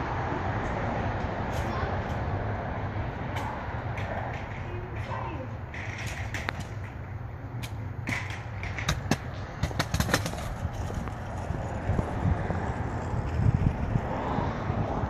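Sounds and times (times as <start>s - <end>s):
wind rumbling on microphone: 9.6s - 15.0s.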